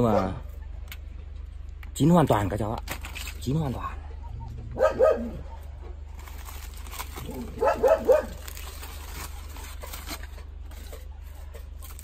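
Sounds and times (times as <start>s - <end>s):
dog barking: 0.0s - 0.5s, 4.0s - 5.6s, 7.3s - 8.5s.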